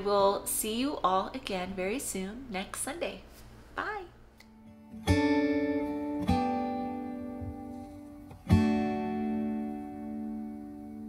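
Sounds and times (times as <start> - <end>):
acoustic guitar chords ringing: 4.5 - 11.0.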